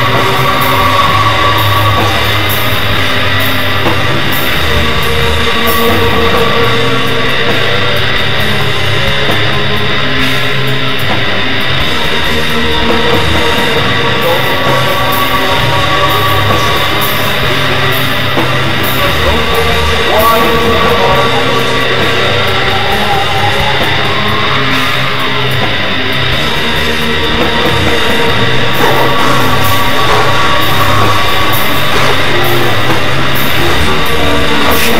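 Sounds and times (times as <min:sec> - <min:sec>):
distorted electric guitar: 0:00.0 - 0:34.9.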